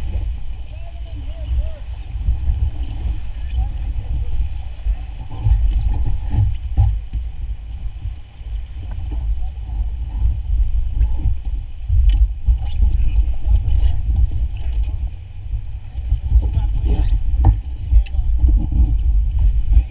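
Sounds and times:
river water rushing: 0.0s - 6.3s.

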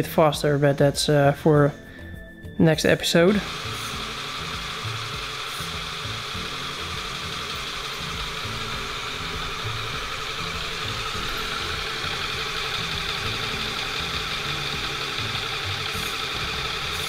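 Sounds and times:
small electric motors whirring: 3.3s - 17.0s
pneumatic compressor: 3.4s - 17.0s.

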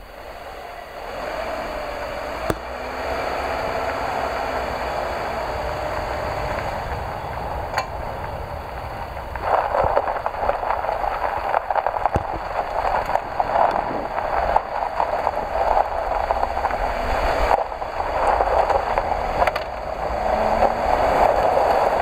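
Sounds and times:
vehicle engine and tyre noise: 0.0s - 22.0s
sharp knocks: 2.5s - 2.8s.

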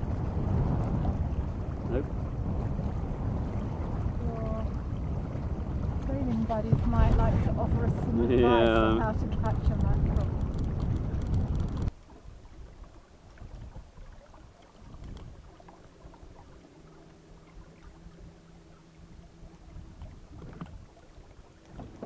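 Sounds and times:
wind and water rumble: 0.0s - 22.0s
faint steady drone: 11.9s - 22.0s.

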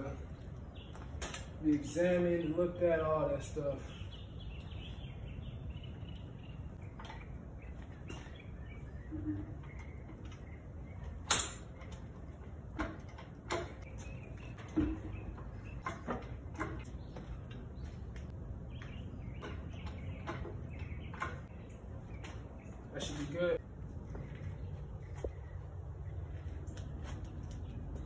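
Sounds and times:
steady low hum: 0.0s - 28.0s
metal clanks and knocks: 9.2s - 17.8s, 19.4s - 21.5s.

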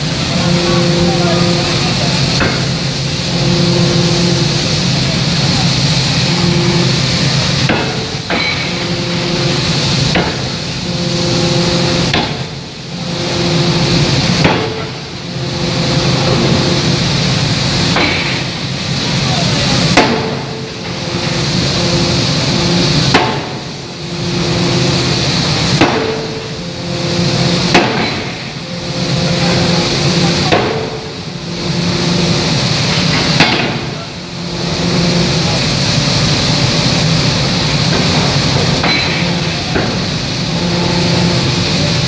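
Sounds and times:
steady machine hum: 0.0s - 42.0s
forging hammer blows: 6.1s - 18.5s, 19.9s - 35.6s.

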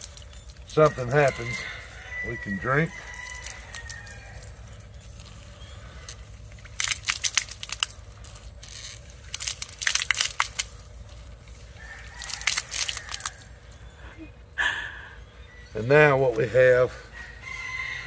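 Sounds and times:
hand pump crackling and sputtering: 0.0s - 13.8s.

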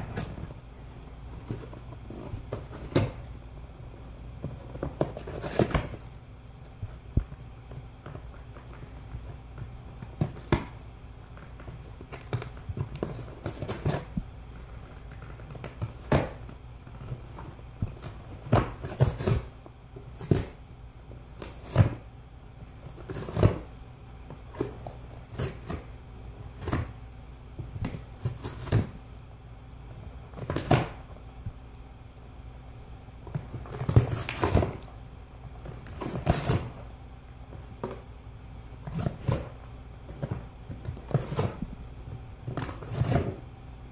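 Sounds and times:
dog tearing and chewing cardboard: 4.4s - 6.1s, 11.4s - 20.6s, 21.3s - 22.0s, 22.8s - 23.7s, 27.8s - 29.0s, 33.4s - 34.9s, 35.6s - 36.9s, 38.8s - 41.6s, 42.4s - 43.5s.

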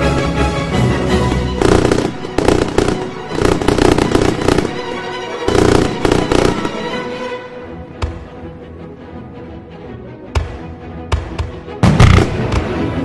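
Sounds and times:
music: 0.0s - 13.0s
fireworks bursting and crackling: 1.6s - 7.0s, 11.8s - 12.8s.

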